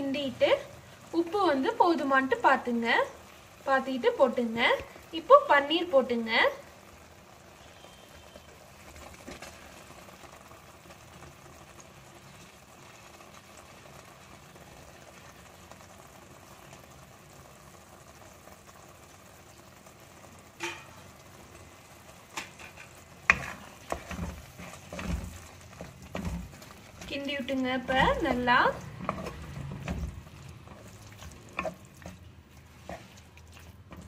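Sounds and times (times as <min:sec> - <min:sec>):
food sizzling in a pan: 0:00.0 - 0:34.0
spatula knocking and scraping pan: 0:20.6 - 0:21.0, 0:22.3 - 0:27.2, 0:27.8 - 0:34.0.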